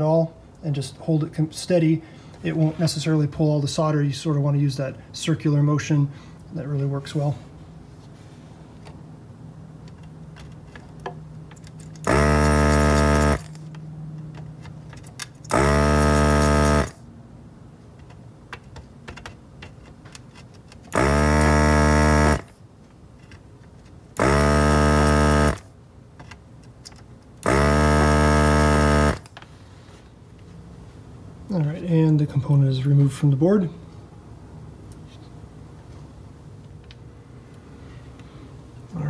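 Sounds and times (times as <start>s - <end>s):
desoldering pump buzzing: 11.9s - 13.8s, 15.5s - 17.1s, 20.9s - 22.6s, 24.1s - 25.7s, 27.4s - 29.4s.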